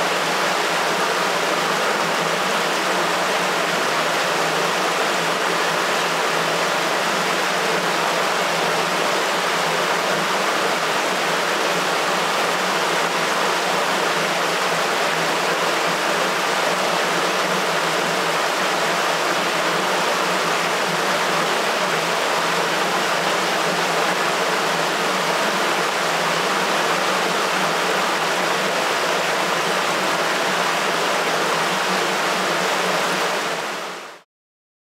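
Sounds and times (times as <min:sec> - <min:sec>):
water rushing through sewer: 0:00.0 - 0:34.2.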